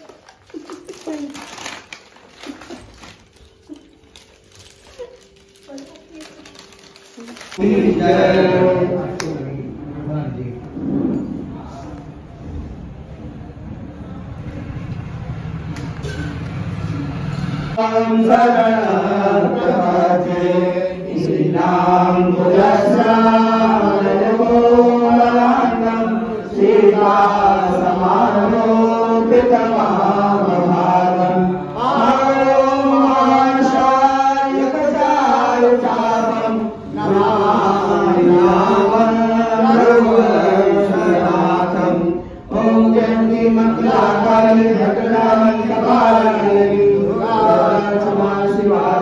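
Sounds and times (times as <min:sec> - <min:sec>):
women singing a hymn: 0:07.6 - 0:09.4, 0:17.8 - 0:49.0
men chanting a prayer: 0:07.6 - 0:10.6, 0:17.7 - 0:49.0.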